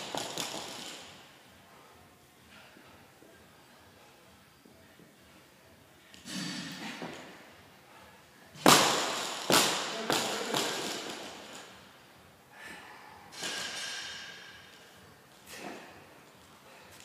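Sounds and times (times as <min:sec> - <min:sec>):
barbell bouncing: 0:00.0 - 0:01.1.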